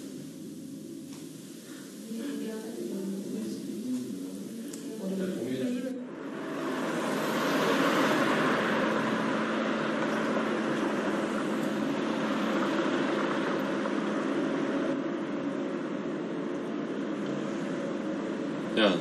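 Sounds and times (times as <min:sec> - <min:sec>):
faint low hum: 0:00.0 - 0:19.0
passing cars: 0:06.0 - 0:19.0.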